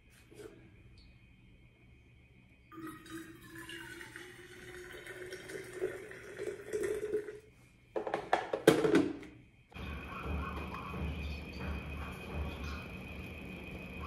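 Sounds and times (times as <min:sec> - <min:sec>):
water pouring into jug: 0:02.7 - 0:07.5.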